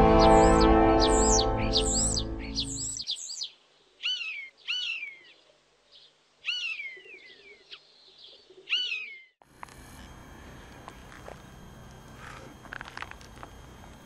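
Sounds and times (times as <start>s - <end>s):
background music: 0.0s - 2.8s
bird whistled calls: 0.3s - 5.2s.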